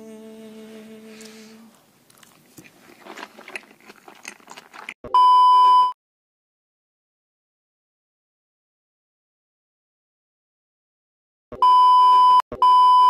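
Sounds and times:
person singing held note: 0.0 - 1.8
chewing with crunching: 2.1 - 5.0
loud beep: 5.1 - 6.0, 11.5 - 13.0.

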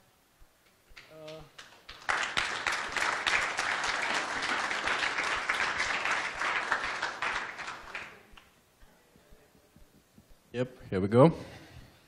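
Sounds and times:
audience applauding: 1.0 - 8.5.

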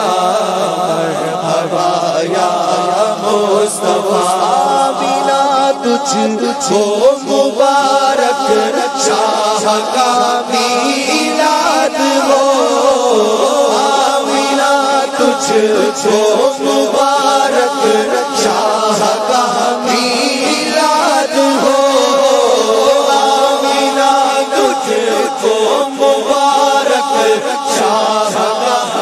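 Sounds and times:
group chanting: 7.4 - 29.0.

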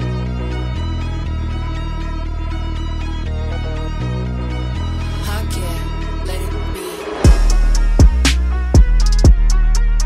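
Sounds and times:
steady bass: 0.0 - 10.0
deep kick drums: 7.2 - 10.0
crisp hi-hat ticks: 7.3 - 10.0.

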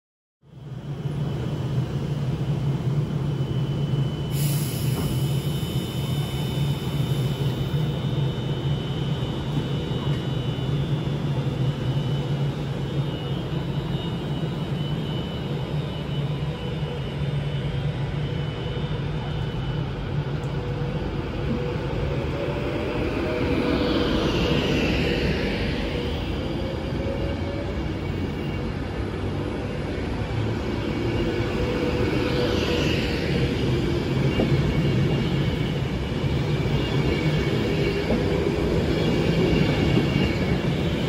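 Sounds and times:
faint high whine: 0.5 - 20.9
train running hum: 0.5 - 41.0.

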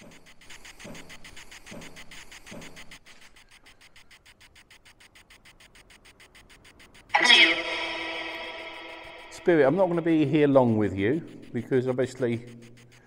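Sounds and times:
fast even clicking: 0.2 - 13.0.

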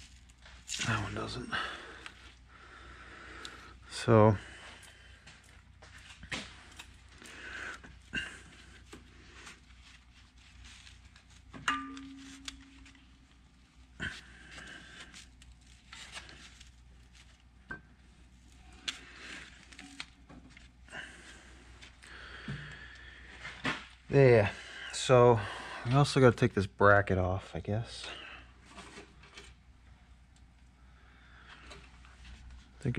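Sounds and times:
heavy breathing: 1.4 - 5.5, 6.4 - 9.6, 20.9 - 23.7, 24.4 - 26.0.

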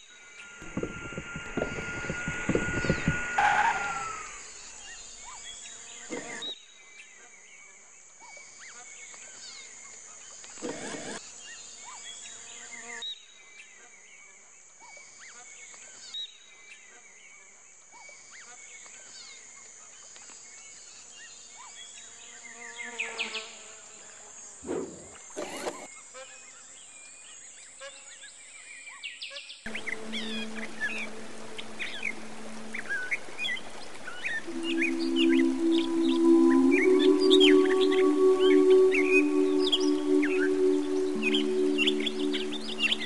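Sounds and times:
high-pitched insect buzzing drone: 0.0 - 6.6, 29.7 - 43.0
short insect chirps: 0.0 - 6.6
rushes of noise: 0.6 - 4.8.

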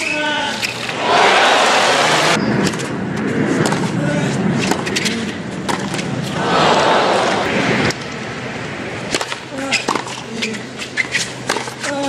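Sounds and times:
crowd applause and cheering: 0.9 - 2.4, 6.3 - 7.8
crowd murmur: 0.9 - 2.4, 6.3 - 8.2
tennis racket hitting ball: 3.6 - 4.0, 4.6 - 8.0, 9.1 - 12.0.

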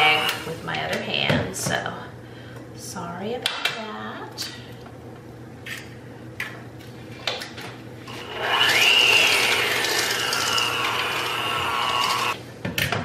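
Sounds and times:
electric hand mixer whining: 0.0 - 0.4, 8.1 - 12.4.

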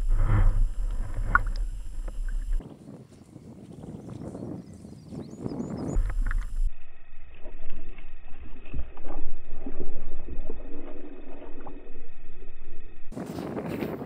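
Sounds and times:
wind buffeting microphone: 0.0 - 6.7, 13.1 - 14.0.

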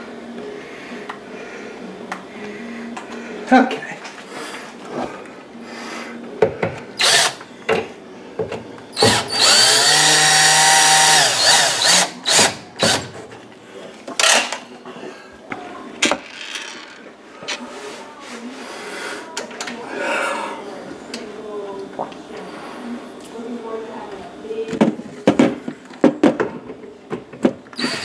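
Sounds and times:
cordless drill whining: 7.0 - 7.4, 9.0 - 13.1, 27.8 - 28.0.

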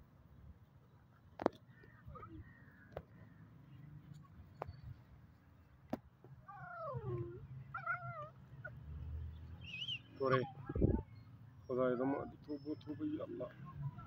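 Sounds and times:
puppy squeals: 6.5 - 8.4
puppies play-fighting: 6.5 - 8.8
puppy whining: 6.5 - 8.8.

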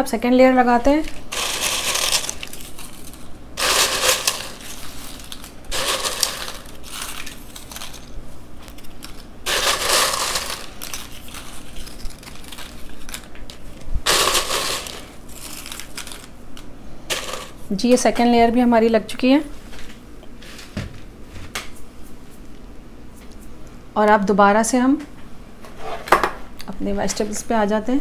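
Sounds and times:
tortilla chips crackling: 1.2 - 17.6.

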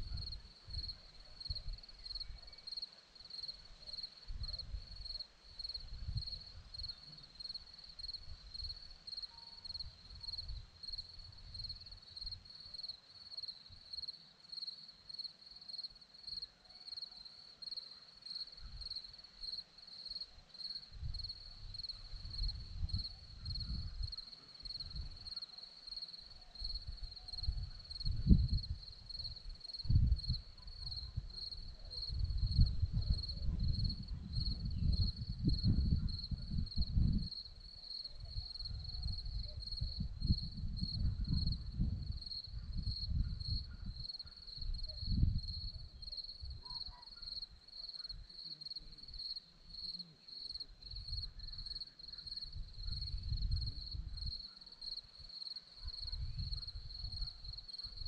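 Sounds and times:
wind rumbling on microphone: 0.0 - 2.5, 4.3 - 7.0, 9.8 - 12.5, 20.9 - 25.3, 26.6 - 46.7, 50.8 - 51.8, 52.4 - 54.5, 55.9 - 58.0
crickets chirping: 0.0 - 58.0.

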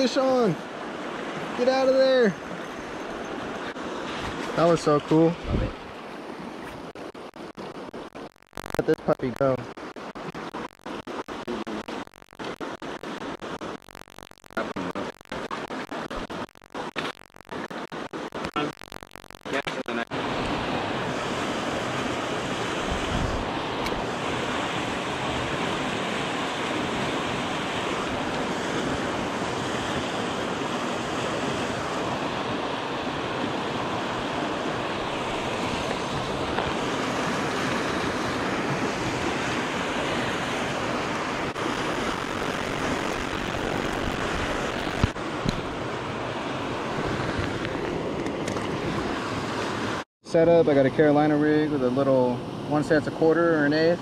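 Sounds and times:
river water rushing: 0.0 - 8.2, 20.2 - 50.0.

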